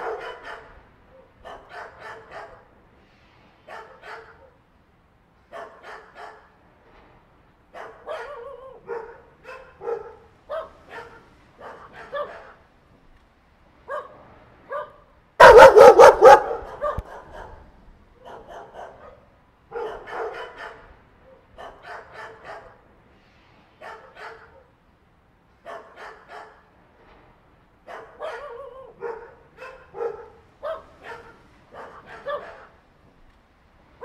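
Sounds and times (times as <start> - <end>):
dogs barking and yipping: 0.0 - 2.7, 3.7 - 4.6, 5.5 - 6.5, 7.7 - 12.6, 14.7 - 22.8, 23.8 - 24.7, 25.6 - 26.6, 27.9 - 32.8.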